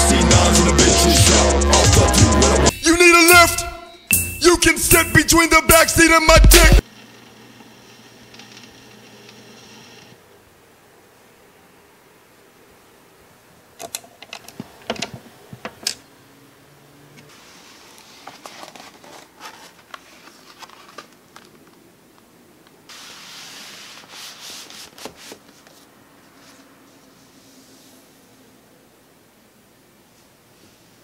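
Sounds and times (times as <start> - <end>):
cardboard and paper rubbing: 17.3 - 21.6, 22.9 - 28.0.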